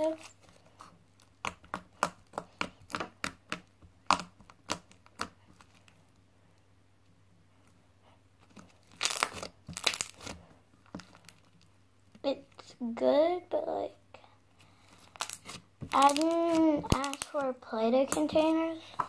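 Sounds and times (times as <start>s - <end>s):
slime clicking and popping: 1.4s - 5.4s, 15.2s - 17.4s
slime crackling and tearing: 3.6s - 5.9s, 8.8s - 10.4s, 14.8s - 17.5s.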